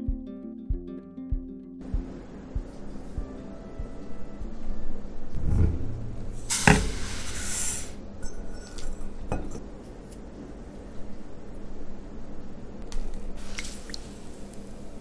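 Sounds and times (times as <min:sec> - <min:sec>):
dishes clinking: 0:05.4 - 0:07.5, 0:08.2 - 0:09.7
sugar pouring hiss: 0:06.4 - 0:09.1, 0:13.4 - 0:15.0
metal clink: 0:08.2 - 0:09.6.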